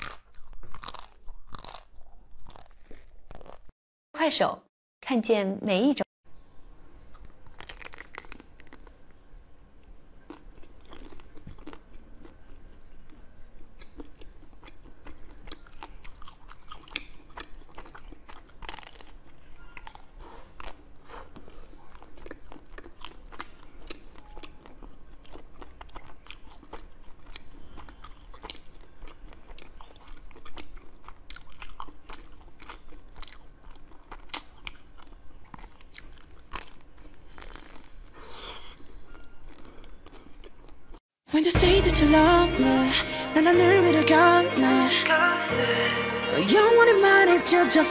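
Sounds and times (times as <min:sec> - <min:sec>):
chewing frozen balls crunching: 0:00.0 - 0:03.8, 0:06.9 - 0:41.0.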